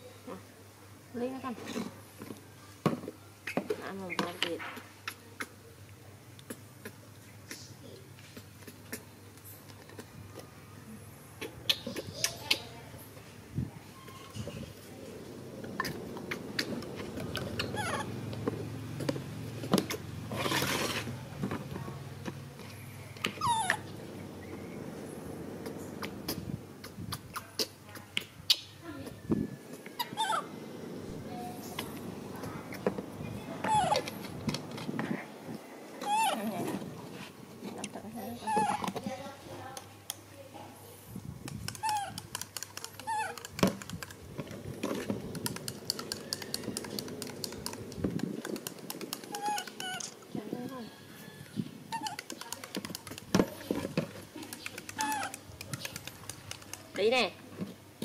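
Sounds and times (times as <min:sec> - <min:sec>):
baby monkey squealing: 0:17.4 - 0:18.2, 0:23.4 - 0:23.9, 0:29.9 - 0:30.5, 0:33.6 - 0:34.2, 0:36.0 - 0:36.4, 0:38.4 - 0:38.9, 0:41.7 - 0:42.3, 0:43.0 - 0:43.5, 0:49.2 - 0:50.2, 0:51.9 - 0:52.5, 0:54.9 - 0:55.5.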